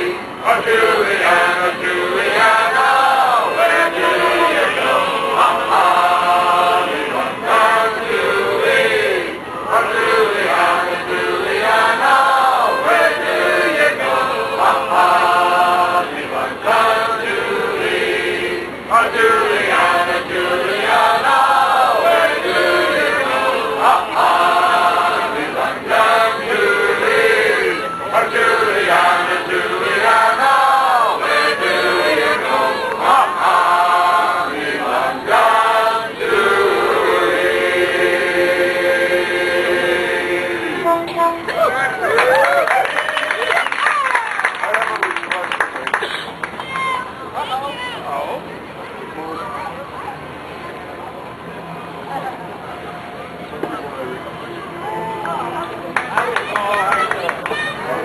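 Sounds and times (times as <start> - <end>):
men singing in chorus: 0.0 - 41.0.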